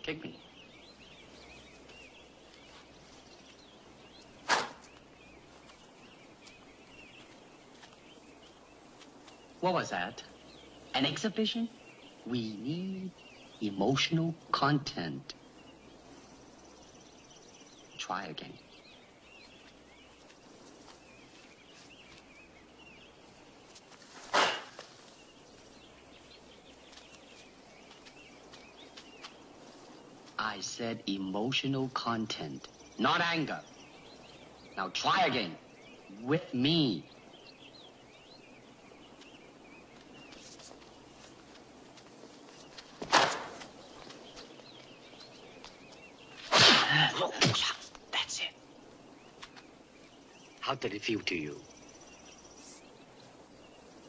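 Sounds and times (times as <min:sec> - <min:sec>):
faint birds chirping: 0:00.0 - 0:54.0
swish and hit of a kick: 0:04.5 - 0:04.8, 0:24.3 - 0:24.8.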